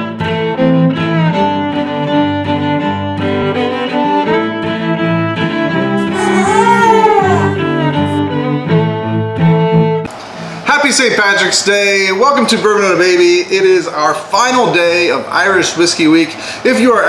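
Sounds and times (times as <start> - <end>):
cello: 0.3 - 9.8
fiddle melody: 6.0 - 8.4.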